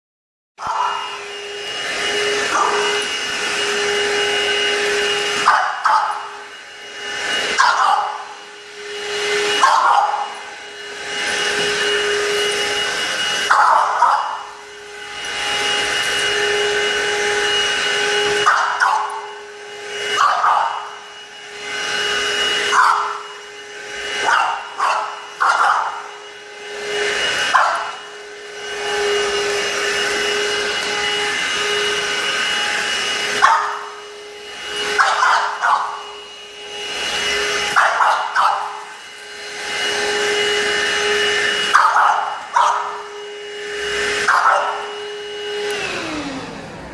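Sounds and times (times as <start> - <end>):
dog barking: 0.6 - 1.2, 2.4 - 3.1, 5.3 - 6.5, 7.4 - 8.4, 9.5 - 10.5, 13.4 - 14.6, 18.3 - 19.4, 20.2 - 21.0, 22.6 - 23.4, 24.2 - 26.1, 27.0 - 28.1, 33.3 - 34.0, 34.8 - 36.2, 37.7 - 38.9, 41.6 - 43.2, 44.2 - 45.0
vacuum cleaner whine: 0.6 - 46.9.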